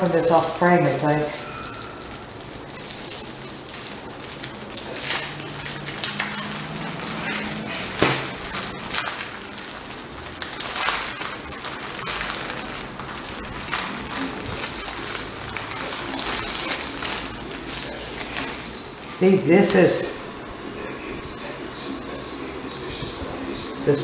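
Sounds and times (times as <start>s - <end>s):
plastic packaging crinkling: 0.0s - 21.6s.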